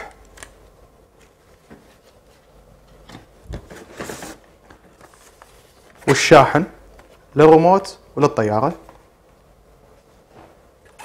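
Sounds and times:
papery scrape: 3.7s - 4.4s.

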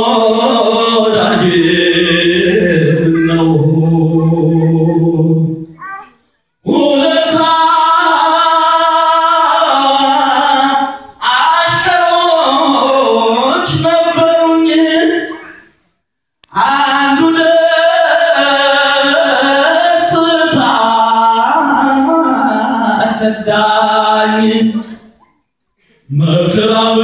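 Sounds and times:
choir singing a hymn: 0.0s - 5.6s.

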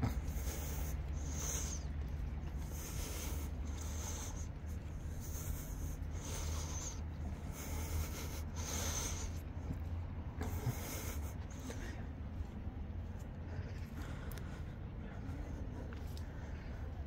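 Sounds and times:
footsteps in socks on asphalt: 0.1s - 17.0s.

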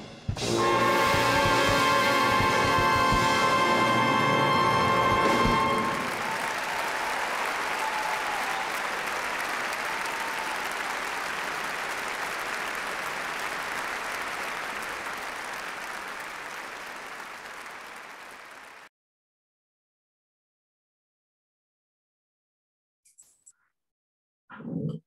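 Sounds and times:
audience applauding: 0.6s - 18.9s.

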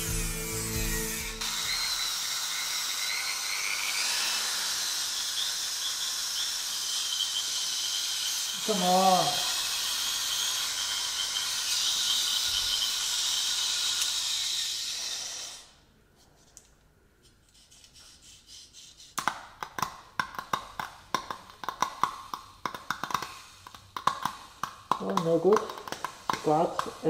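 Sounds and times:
grinder high-pitched whine: 0.0s - 15.7s
clicks and rattles of handled tool: 21.1s - 27.0s.

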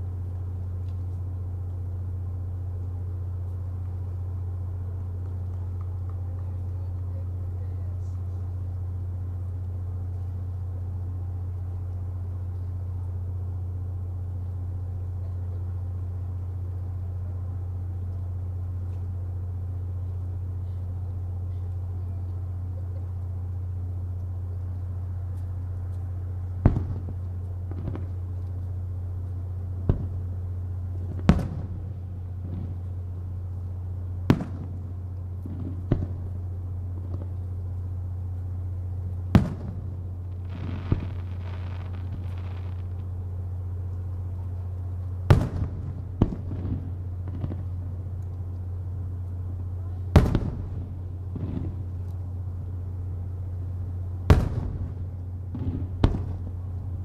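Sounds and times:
low hum: 0.0s - 57.0s
firework bangs: 26.6s - 28.4s, 29.7s - 37.4s, 39.2s - 43.3s, 45.2s - 48.2s, 50.0s - 52.1s, 54.2s - 57.0s.

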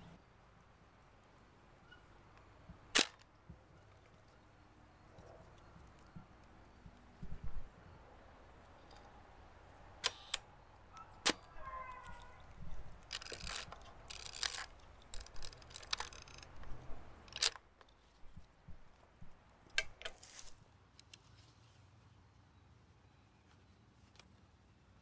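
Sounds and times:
camera shutter clicks: 10.0s - 10.5s
film advance ratcheting: 13.0s - 16.6s.

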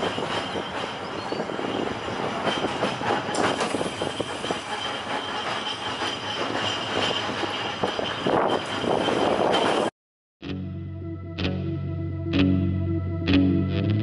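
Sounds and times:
high-pitched tram whine: 0.0s - 9.9s
tram wheels rattling over rails: 0.0s - 9.9s.

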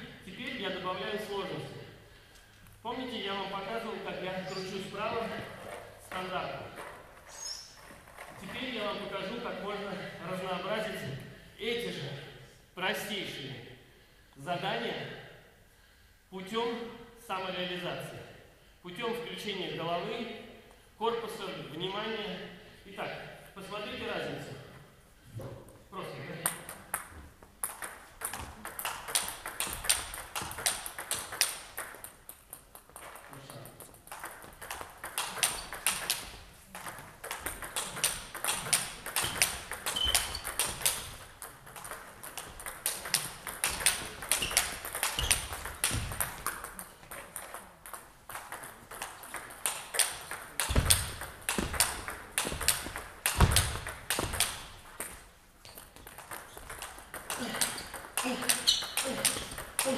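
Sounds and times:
table tennis ball clicking: 26.4s - 59.9s.

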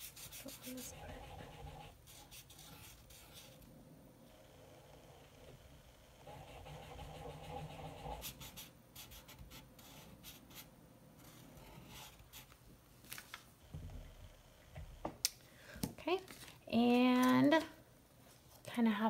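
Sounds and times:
marker drawing on paper: 0.0s - 3.6s, 6.3s - 12.5s.

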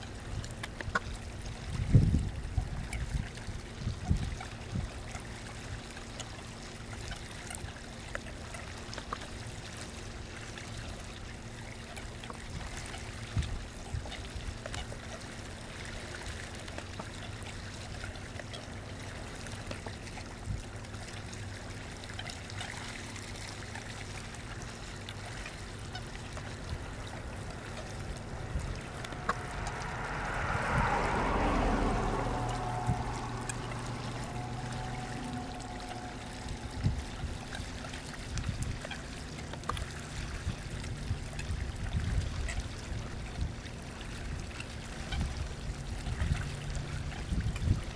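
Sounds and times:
water lapping: 0.0s - 47.9s
steady low hum: 17.5s - 43.2s
splashing rush: 25.7s - 38.3s.

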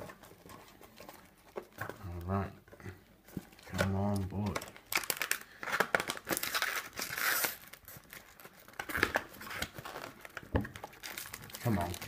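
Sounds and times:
foil packs crinkling: 3.5s - 12.0s.

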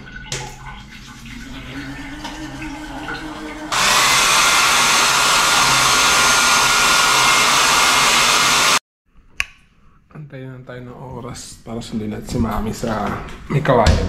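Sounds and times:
hair dryer blowing: 3.3s - 8.8s.

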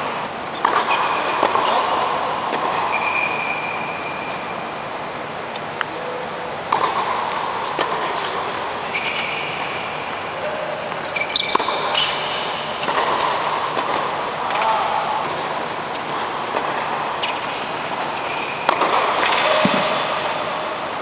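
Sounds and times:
tennis ball struck by rackets: 0.6s - 1.8s, 6.7s - 9.6s, 10.9s - 14.6s, 15.2s - 20.3s
tennis ball bouncing on court: 0.6s - 3.6s, 6.7s - 20.4s
tennis shoes squeaking: 2.7s - 4.6s, 6.0s - 13.1s, 15.8s - 20.0s.

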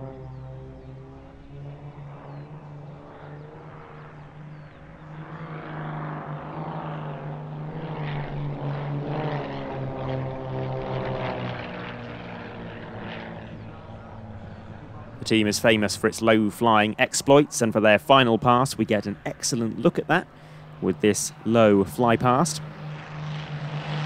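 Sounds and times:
propeller aircraft engine droning: 0.0s - 24.0s.

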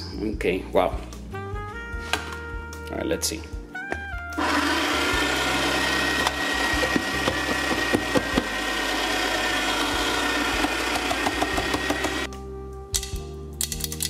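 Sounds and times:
coffee grinder whining: 4.4s - 12.3s.

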